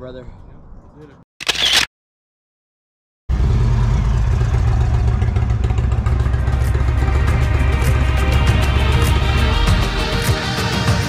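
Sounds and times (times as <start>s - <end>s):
short burst of noise: 1.4s - 1.9s
motorcycle engine running: 3.3s - 10.0s.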